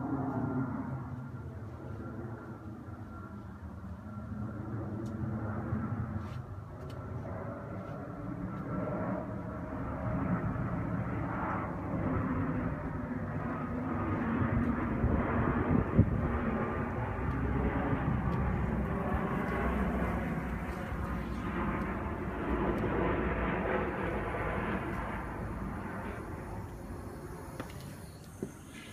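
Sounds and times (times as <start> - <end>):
distant engine rumble: 9.2 - 28.9.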